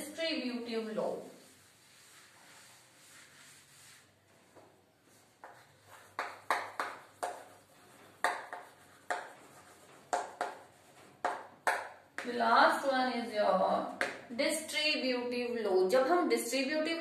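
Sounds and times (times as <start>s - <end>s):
chalk writing on a blackboard: 1.2s - 12.3s.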